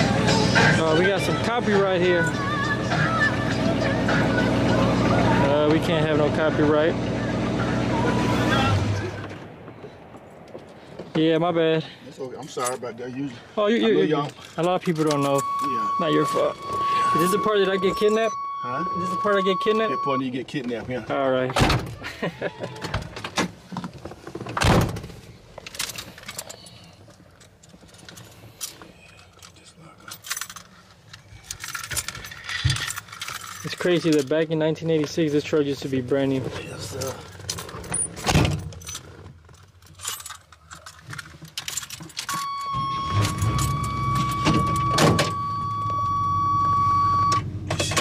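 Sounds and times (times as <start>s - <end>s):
high warning buzzer: 15.3s - 20.2s, 42.4s - 47.4s
truck door shutting: 24.4s - 25.2s, 42.2s - 48.0s
keys jangling: 27.4s - 34.3s, 37.0s - 42.5s
clicks and rattles in cab: 36.8s - 46.1s, 47.3s - 48.0s.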